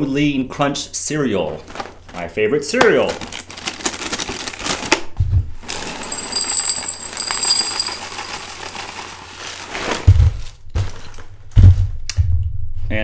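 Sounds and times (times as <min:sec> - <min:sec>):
cereal pouring into bowl: 0:05.7 - 0:10.0
high ringing tones: 0:06.0 - 0:08.6.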